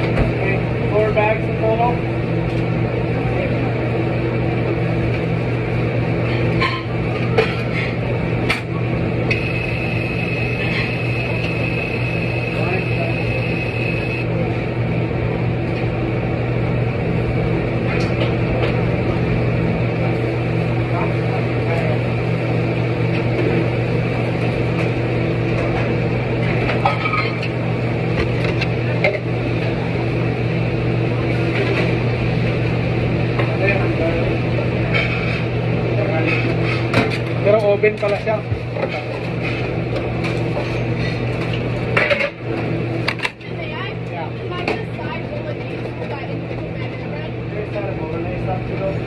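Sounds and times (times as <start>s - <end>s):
machine hum: 0.0s - 49.0s
high whine: 6.2s - 22.5s.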